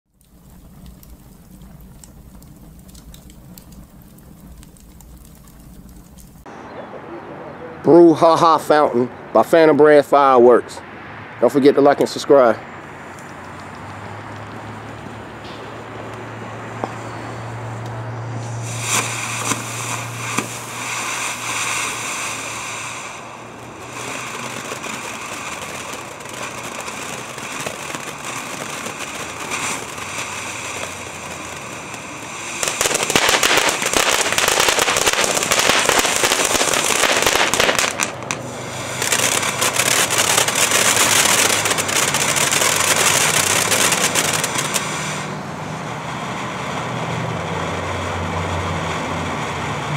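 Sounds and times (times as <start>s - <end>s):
firework crackling: 0.1s - 6.5s, 11.4s - 49.9s
fountain firework hissing: 0.1s - 6.5s, 12.2s - 49.9s.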